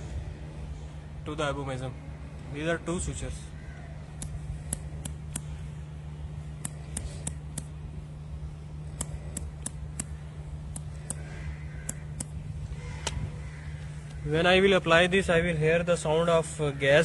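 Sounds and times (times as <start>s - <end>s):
steady low hum: 0.0s - 17.0s
sharp high clicks: 4.1s - 5.6s, 6.6s - 7.8s, 8.9s - 12.4s.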